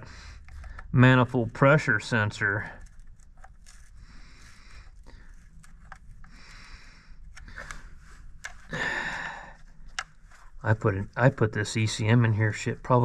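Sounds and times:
person breathing: 0.0 - 0.9, 3.8 - 5.5, 6.2 - 10.6
hand rustling among wiring: 0.0 - 13.0
low steady hum: 0.0 - 13.0.

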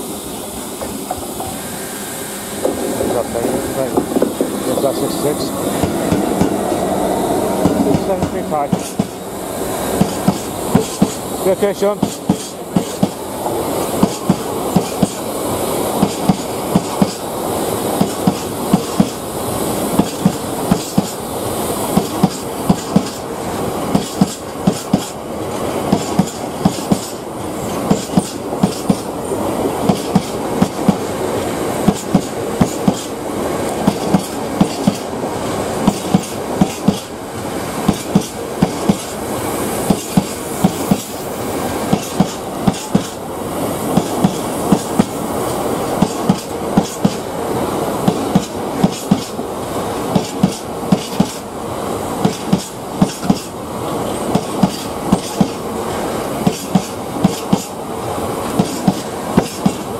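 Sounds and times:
freight train rumble: 0.0 - 59.9
train wheels clattering over rail joints: 2.6 - 6.6, 7.6 - 9.2, 9.9 - 15.3, 16.0 - 17.3, 18.0 - 19.2, 20.0 - 21.2, 21.9 - 23.3, 23.9 - 31.0, 31.8 - 35.2, 35.8 - 37.1, 37.8 - 39.2, 39.8 - 41.2, 41.8 - 43.2, 43.9 - 47.3, 48.0 - 49.4, 50.1 - 51.4, 52.2 - 55.6, 56.4 - 57.8, 58.4 - 59.9.

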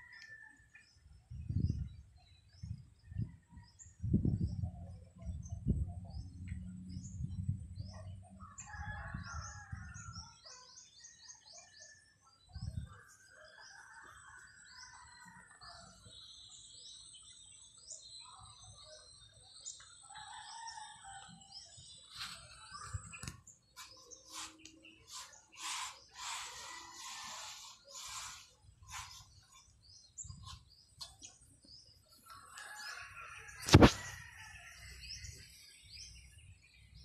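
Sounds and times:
small birds chirping: 16.0 - 34.4.

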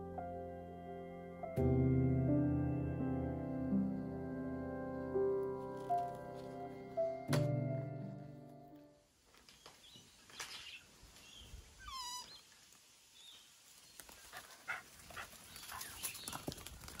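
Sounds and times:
birds chirping: 9.4 - 12.6, 13.2 - 16.6.

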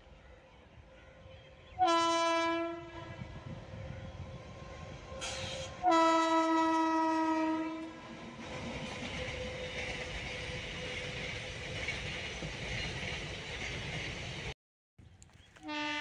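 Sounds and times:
train rumble: 0.0 - 14.6
train horn blast: 1.7 - 3.5, 5.1 - 8.0, 15.6 - 16.0.

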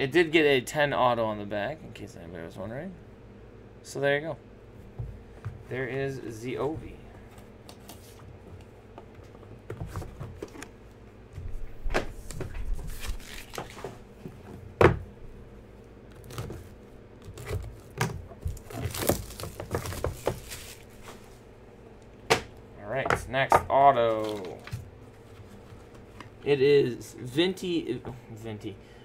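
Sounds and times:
cardboard and plastic rustling: 7.2 - 10.7, 11.5 - 14.6, 16.1 - 21.4, 24.1 - 26.5.

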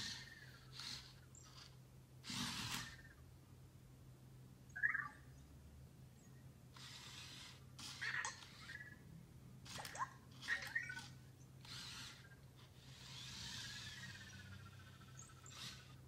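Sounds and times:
small motor whirring: 0.0 - 3.2, 6.7 - 9.0, 9.6 - 16.0.

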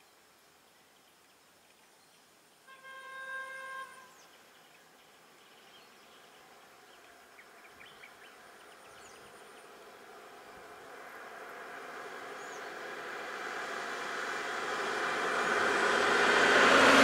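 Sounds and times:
vehicle horn: 2.6 - 4.3
vehicle running: 7.4 - 17.0.

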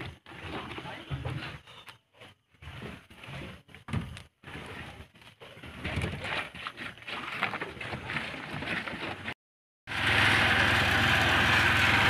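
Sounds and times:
knocks and scrapes: 0.0 - 9.4.

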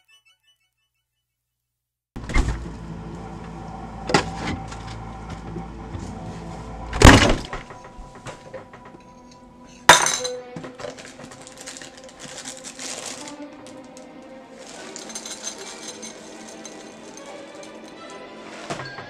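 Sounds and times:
glass jars and dishes clinking: 9.0 - 11.8, 14.6 - 19.0.

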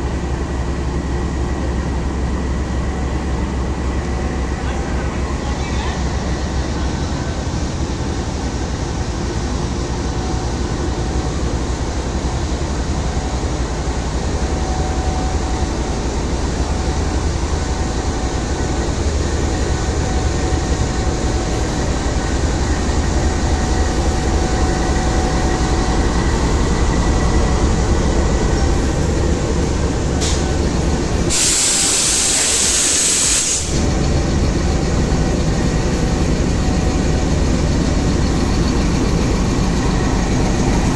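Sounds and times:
diesel locomotive running: 0.0 - 40.9
sharp hiss of air: 31.2 - 33.8.

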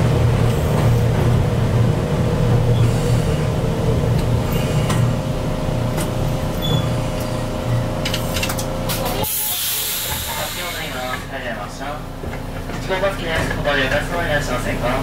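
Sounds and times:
train braking rumble: 6.3 - 11.3
air hiss: 9.2 - 11.2.

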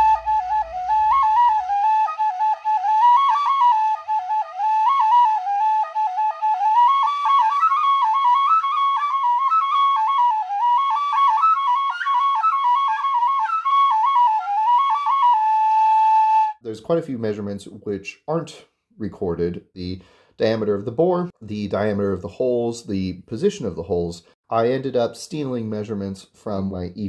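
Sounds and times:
penny whistle tune: 0.0 - 16.6.

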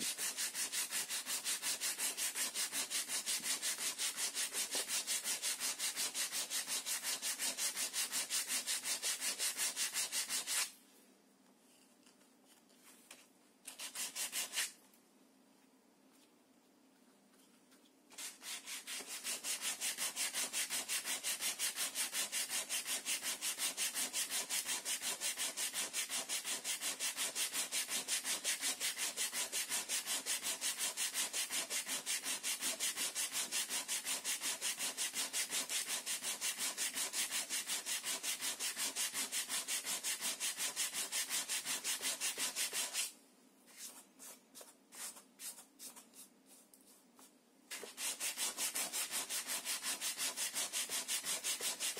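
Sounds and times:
sandpaper rubbing on wood: 0.0 - 10.7, 13.7 - 14.8, 18.2 - 43.1, 47.7 - 51.9.

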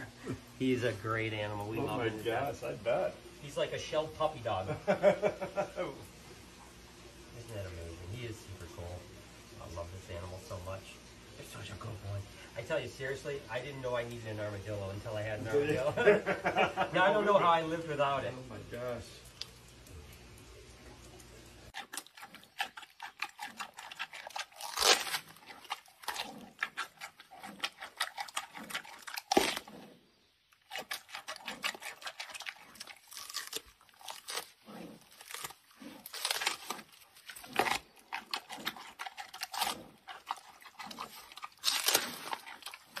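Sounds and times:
panda chewing bamboo: 21.2 - 43.0.

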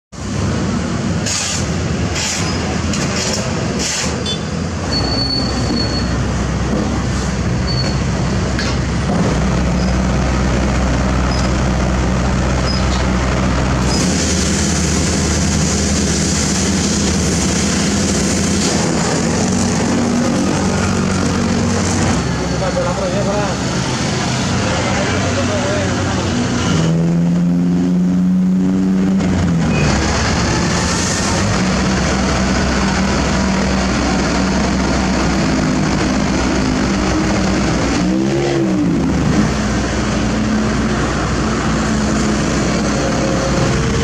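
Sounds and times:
heavy diesel machinery running: 0.1 - 44.0
brief high squeals: 4.3 - 6.2.

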